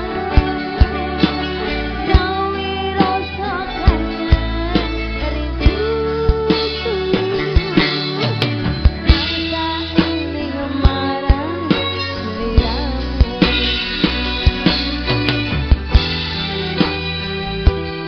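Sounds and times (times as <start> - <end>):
woman singing: 0.0 - 14.7
driving drum beat: 0.0 - 18.0
electric guitars: 0.0 - 18.0.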